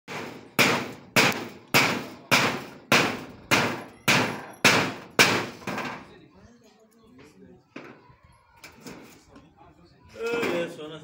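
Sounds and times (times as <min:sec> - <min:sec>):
hammer blows ringing: 0:00.1 - 0:05.8.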